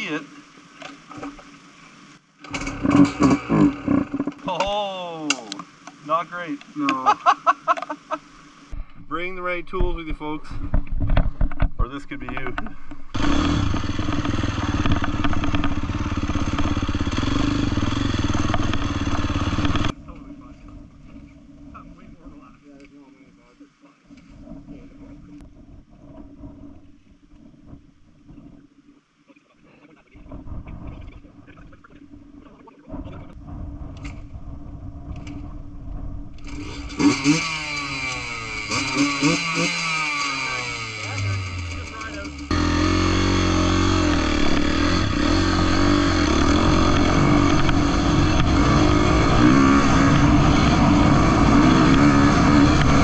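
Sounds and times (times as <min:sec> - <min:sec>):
dirt bike engine running: 0:02.5 - 0:04.9, 0:09.0 - 0:20.0, 0:33.4 - 0:53.0.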